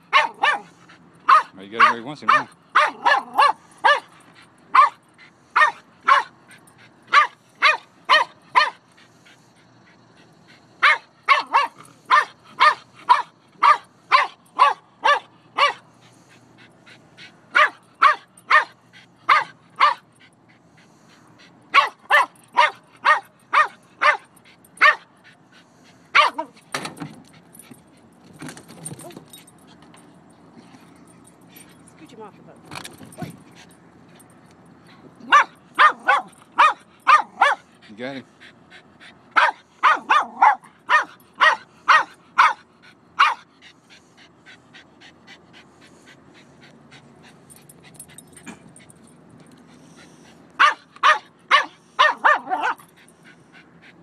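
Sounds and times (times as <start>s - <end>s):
dog barking: 0.1s - 4.1s, 4.7s - 5.0s, 5.6s - 6.4s, 7.1s - 8.8s, 10.8s - 15.8s, 17.5s - 20.0s, 21.8s - 25.1s, 26.2s - 26.5s, 35.2s - 37.7s, 39.4s - 42.6s, 43.2s - 43.5s, 50.6s - 52.8s.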